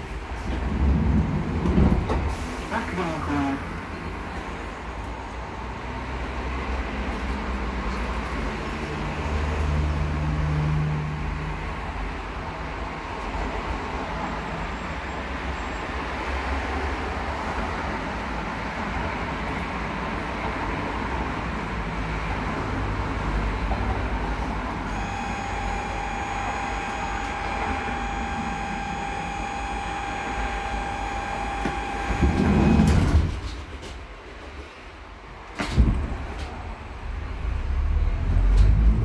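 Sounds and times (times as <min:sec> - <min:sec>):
train rolling rumble and rattle: 0:00.0 - 0:39.0
high whine with overtones: 0:24.9 - 0:32.9.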